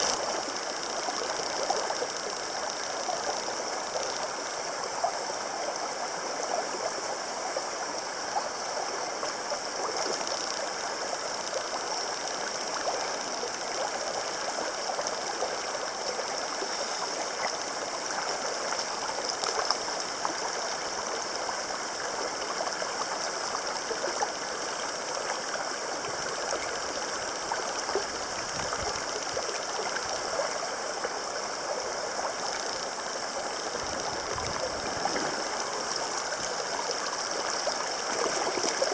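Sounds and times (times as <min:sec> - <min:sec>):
steady high-pitched hiss: 0:00.0 - 0:38.9
stream flowing over stones: 0:00.0 - 0:38.9.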